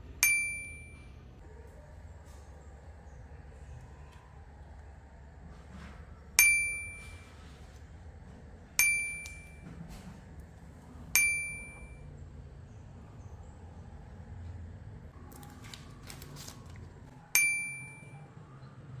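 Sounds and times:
bright metallic dings: 0.1s - 1.2s, 6.4s - 7.3s, 8.8s - 9.8s, 11.1s - 12.1s, 17.3s - 18.4s.

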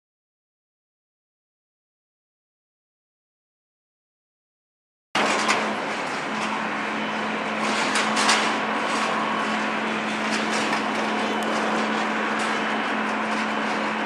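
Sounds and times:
jet engines running: 5.2s - 14.0s.

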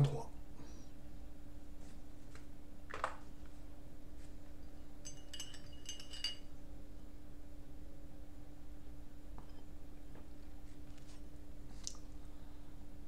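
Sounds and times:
faint steady hum: 0.0s - 13.0s
light clicks and clinks: 5.0s - 6.5s.

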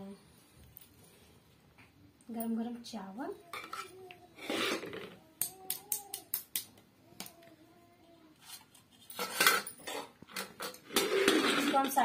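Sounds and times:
metal spatula scraping steel plate: 9.2s - 12.0s.

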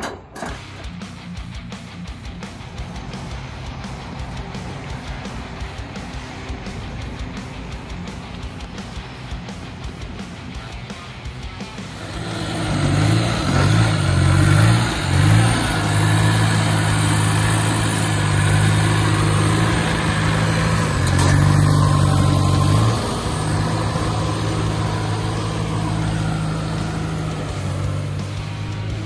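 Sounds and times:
forklift engine running: 0.0s - 29.0s.

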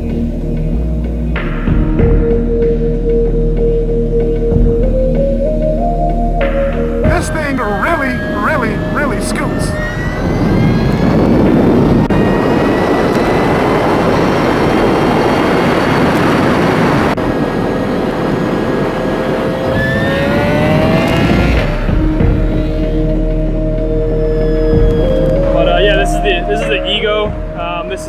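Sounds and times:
music with held tones: 0.0s - 13.4s, 20.2s - 28.0s
wind rush: 6.8s - 28.0s
electric motor whine: 9.7s - 26.0s.

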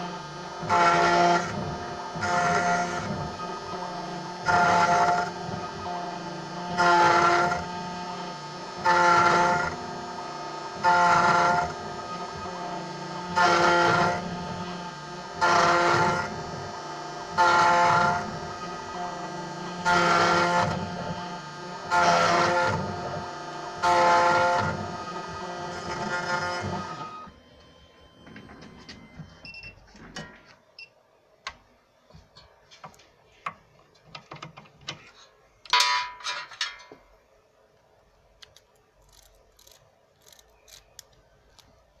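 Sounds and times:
key-cutting machine whine: 0.0s - 30.4s, 39.1s - 41.1s.

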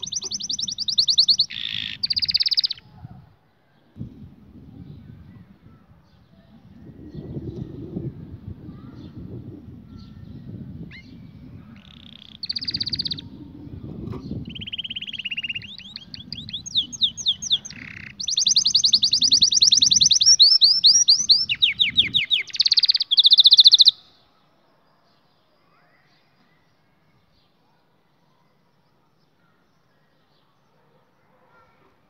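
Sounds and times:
canary trilling song: 0.0s - 2.9s, 9.9s - 24.2s.

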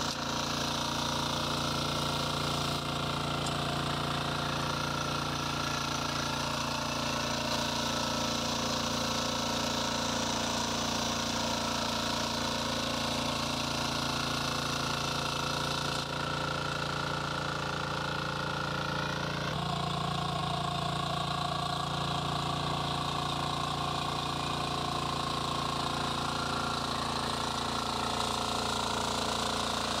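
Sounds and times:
power weeder engine running: 0.0s - 30.0s.

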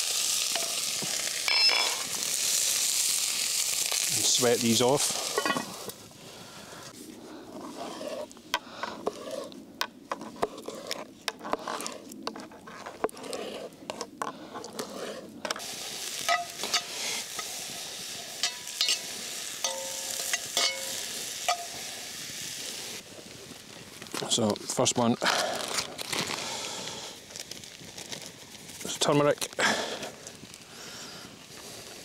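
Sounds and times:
onion sizzling in hot oil: 0.0s - 6.3s, 15.6s - 25.0s
utensil scraping a pot: 7.5s - 17.5s, 18.4s - 21.7s.

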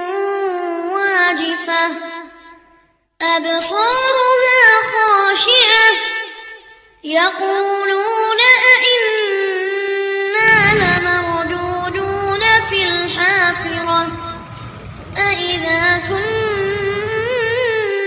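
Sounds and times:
high solo voice singing with vibrato: 7.1s - 14.5s.

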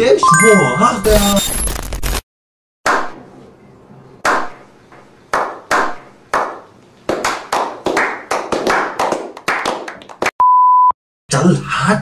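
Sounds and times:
men clapping: 5.4s - 10.3s.

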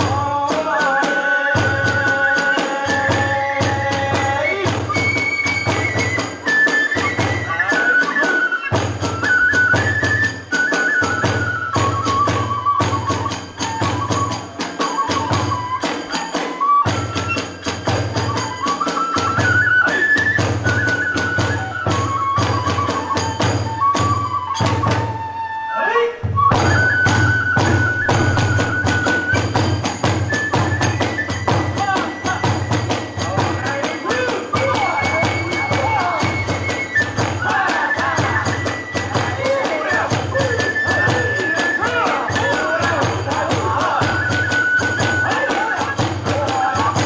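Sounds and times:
bamboo flute melody: 0.0s - 47.0s
rapid drum strokes: 26.2s - 47.0s
hand cymbals clashing: 28.0s - 37.4s.

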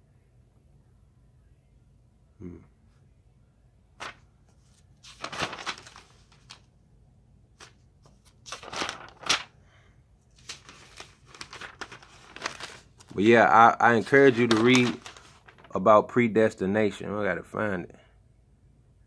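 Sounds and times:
book pages rustling: 4.0s - 6.7s, 7.6s - 9.5s, 10.3s - 15.7s.

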